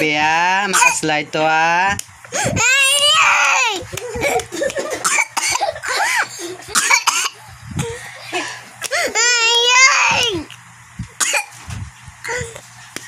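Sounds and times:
young girl crying: 0:02.3 - 0:04.4, 0:07.8 - 0:10.5, 0:12.3 - 0:12.6.

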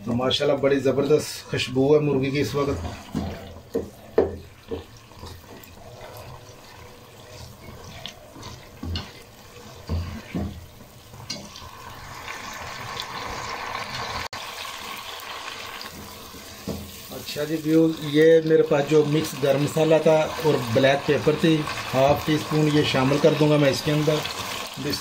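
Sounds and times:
curry bubbling and sizzling: 0:00.0 - 0:25.0
spatula scraping pot: 0:01.0 - 0:13.4.

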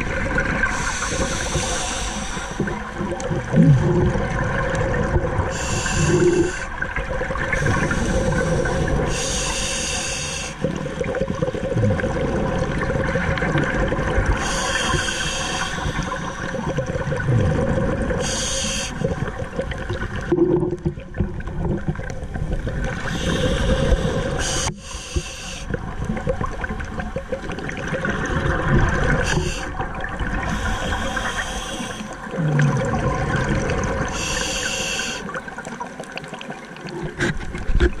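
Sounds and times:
exhaled bubbles rushing: 0:00.0 - 0:09.1, 0:10.6 - 0:14.9, 0:15.7 - 0:24.6, 0:25.7 - 0:31.4, 0:32.1 - 0:34.2
regulator inhale hiss: 0:00.6 - 0:03.0, 0:05.5 - 0:06.8, 0:07.5 - 0:10.8, 0:14.4 - 0:16.8, 0:18.2 - 0:19.2, 0:23.0 - 0:25.8, 0:29.2 - 0:32.3, 0:34.1 - 0:35.4.

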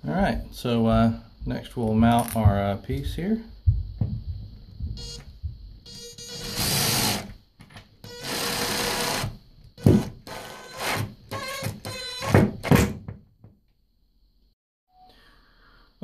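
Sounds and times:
power drill driving a screw: 0:06.2 - 0:07.3, 0:08.0 - 0:12.4.

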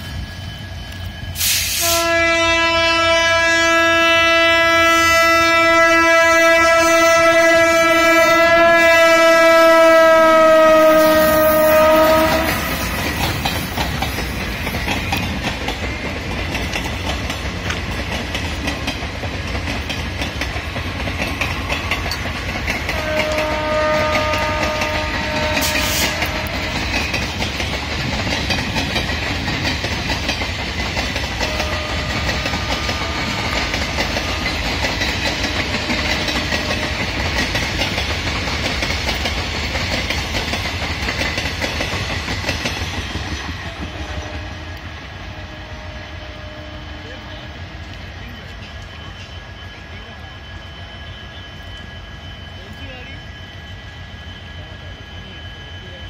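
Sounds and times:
train wheels clattering on rails: 0:00.0 - 0:02.2, 0:09.2 - 0:45.1
distant train horn: 0:01.4 - 0:13.3, 0:22.7 - 0:27.4, 0:31.0 - 0:38.0, 0:43.6 - 0:47.8.

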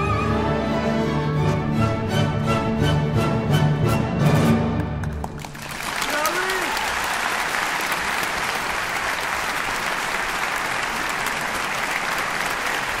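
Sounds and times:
audience applauding: 0:04.8 - 0:13.0.

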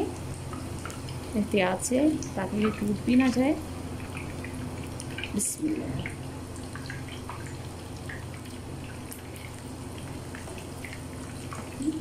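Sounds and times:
oil popping and crackling: 0:03.9 - 0:12.0.

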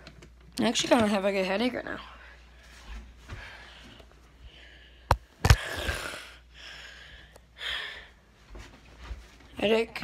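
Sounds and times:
soft breaths: 0:01.9 - 0:09.5.

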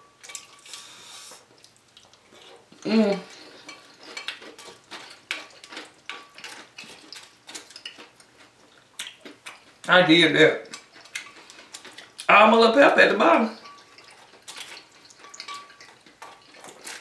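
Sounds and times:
metal spoon clinking on glass bowl: 0:15.2 - 0:15.9.

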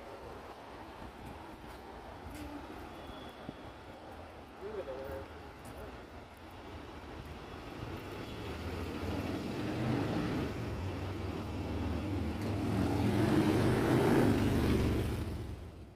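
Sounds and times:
vehicle engine and tyres approaching: 0:07.4 - 0:15.9.

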